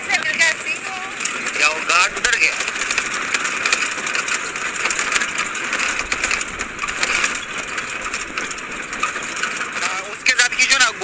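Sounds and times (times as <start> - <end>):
faint engine: 0.0 - 11.0
vehicle rattling on rough track: 0.0 - 11.0.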